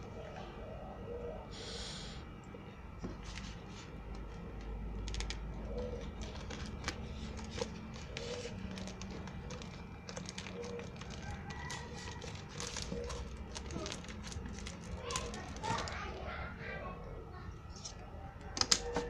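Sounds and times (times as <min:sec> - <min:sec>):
plastic parcel crinkling: 0:04.9 - 0:16.2.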